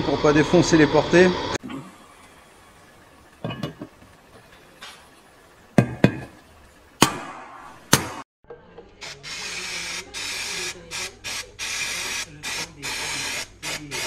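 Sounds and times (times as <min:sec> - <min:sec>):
knocking on engine case: 0:05.8 - 0:06.3.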